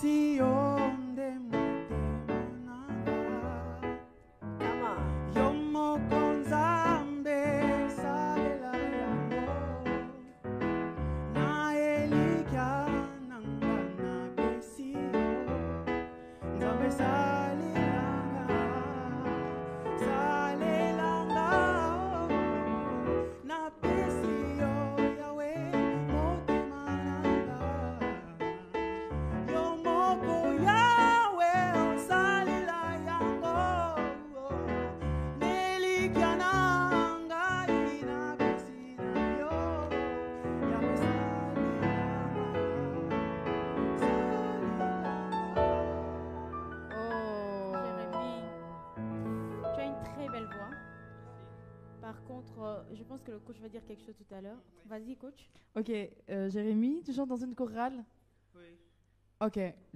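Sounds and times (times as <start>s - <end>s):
man singing into a microphone: 0.0s - 10.5s, 11.1s - 15.7s, 16.4s - 45.7s
keyboard chords and bass: 0.0s - 23.2s, 23.8s - 52.1s
instrumental accompaniment: 0.0s - 53.2s.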